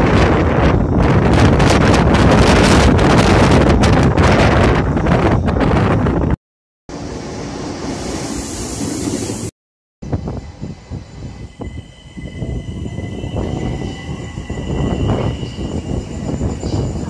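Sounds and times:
train wheels rumbling and clattering: 0:00.0 - 0:06.2
diesel locomotive running: 0:06.9 - 0:17.0
train high-pitched whine: 0:07.0 - 0:17.0.

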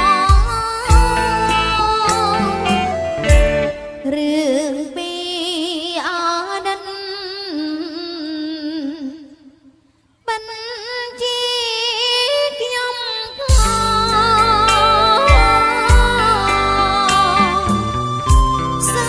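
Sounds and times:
woman singing with vibrato: 0:00.0 - 0:09.7, 0:10.3 - 0:19.0
sparse instrumental accompaniment: 0:00.1 - 0:04.3.

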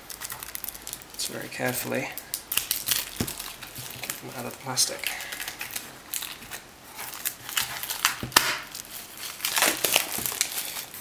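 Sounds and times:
plastic shrink-wrap crinkling: 0:00.0 - 0:11.0.

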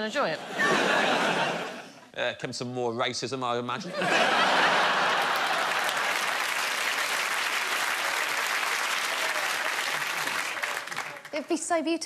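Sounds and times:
audience applauding: 0:04.1 - 0:11.6.

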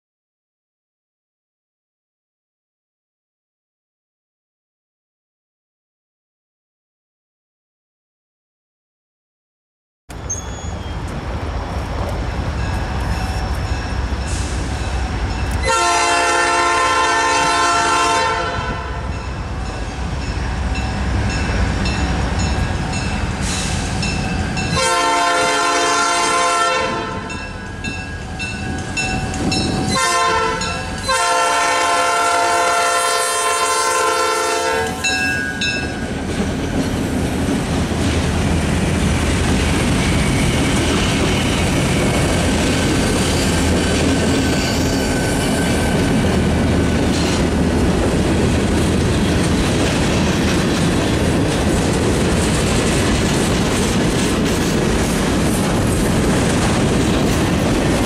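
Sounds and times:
locomotive air horn blasts: 0:15.6 - 0:19.1, 0:24.7 - 0:27.4, 0:29.9 - 0:35.1.

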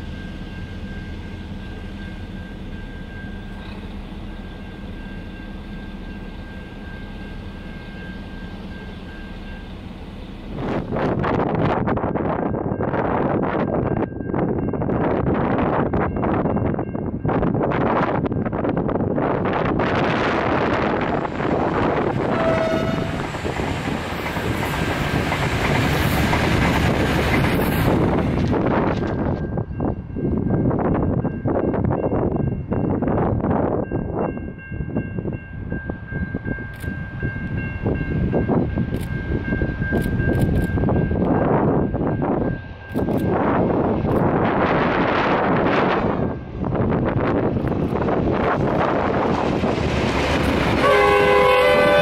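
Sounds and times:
diesel train engine running: 0:00.0 - 0:11.9, 0:18.6 - 0:30.4, 0:36.0 - 0:52.0
wind gust on microphone: 0:10.5 - 0:52.0.

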